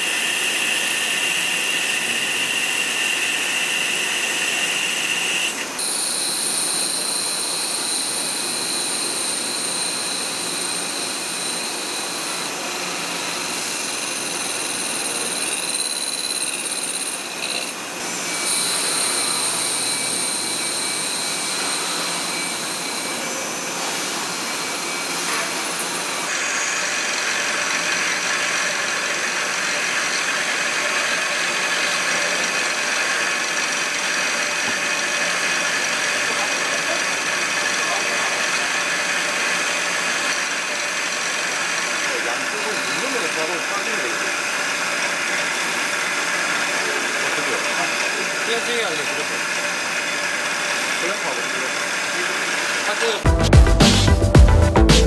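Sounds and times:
lathe machining noise: 0:00.0 - 0:53.3
high whining tones: 0:04.4 - 0:12.6, 0:13.9 - 0:23.5.

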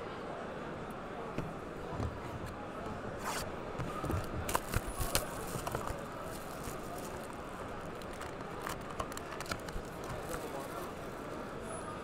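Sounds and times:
cardboard box being opened: 0:03.2 - 0:10.6
plastic wrapping crackling: 0:04.0 - 0:11.2
foil pack pulled out: 0:04.2 - 0:10.9.

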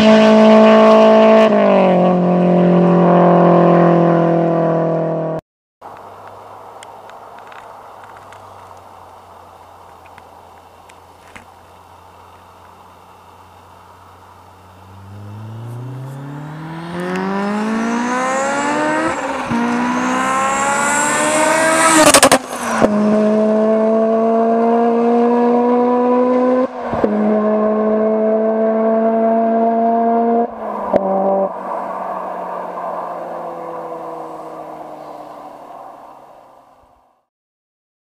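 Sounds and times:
car engine accelerating hard: 0:00.0 - 0:05.4, 0:12.8 - 0:35.6.

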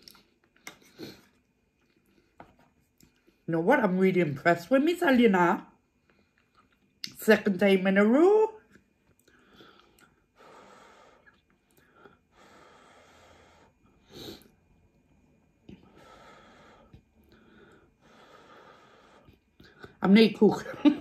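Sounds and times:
soft puffs of breath: 0:09.3 - 0:14.6, 0:15.8 - 0:19.5.

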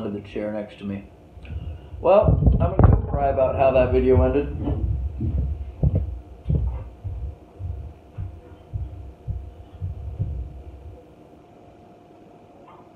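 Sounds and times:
faint steady hum: 0:00.0 - 0:12.9
footsteps walking away: 0:02.3 - 0:11.0.

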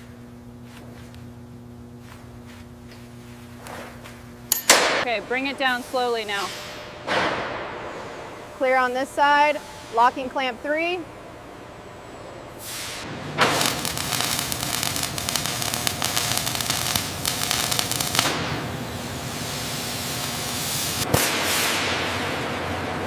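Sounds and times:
arc welder crackling and hissing: 0:12.6 - 0:22.4.

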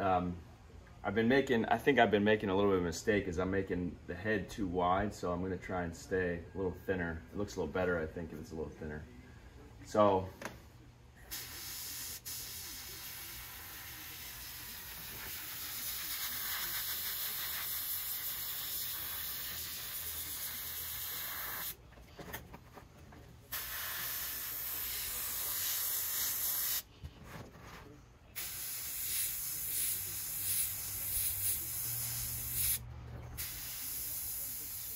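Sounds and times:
airbrush spraying hiss: 0:11.3 - 0:21.8, 0:23.5 - 0:26.9, 0:28.4 - 0:32.8, 0:33.4 - 0:34.9.

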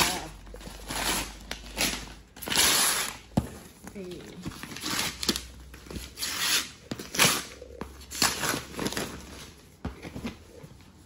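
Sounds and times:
wrapping paper tearing and rustling: 0:00.0 - 0:03.3, 0:04.5 - 0:09.6.

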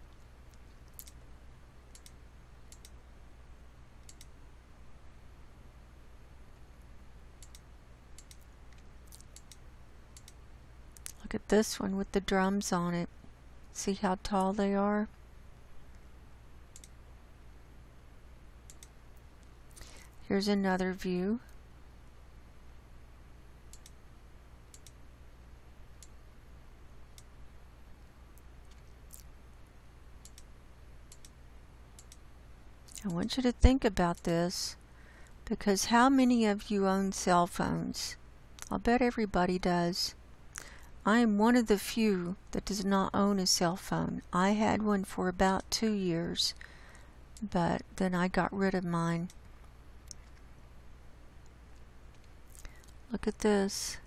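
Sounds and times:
faint low hum: 0:00.0 - 0:54.0
computer mouse clicking: 0:00.1 - 0:01.2, 0:01.9 - 0:03.0, 0:04.0 - 0:04.4, 0:07.4 - 0:09.6, 0:10.2 - 0:10.4, 0:16.7 - 0:17.0, 0:18.6 - 0:19.0, 0:23.7 - 0:24.0, 0:24.7 - 0:25.0, 0:30.2 - 0:30.5, 0:31.1 - 0:31.4, 0:32.0 - 0:32.2.

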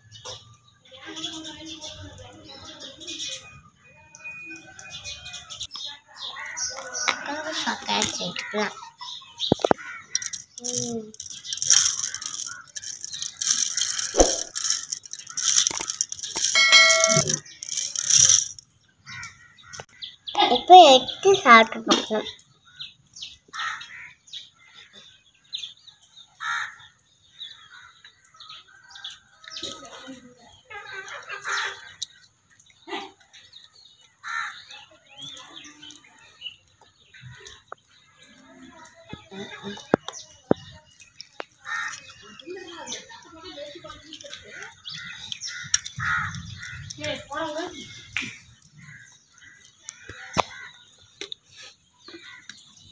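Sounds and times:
birds chirping: 0:00.0 - 0:52.9
sugar rattling on plate: 0:09.6 - 0:18.7
short electronic chime: 0:16.5 - 0:17.4.

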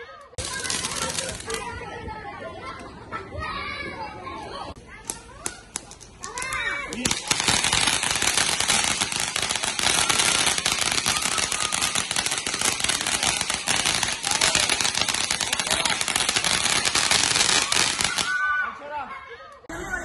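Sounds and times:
firework hiss: 0:00.4 - 0:01.6, 0:05.6 - 0:18.4
fireworks crackling: 0:00.4 - 0:02.0, 0:05.0 - 0:18.5.

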